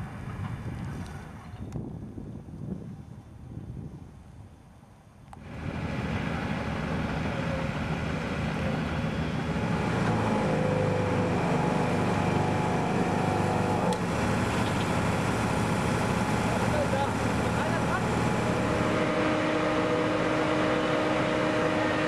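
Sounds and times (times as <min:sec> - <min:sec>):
pump engines running: 0:05.4 - 0:22.0.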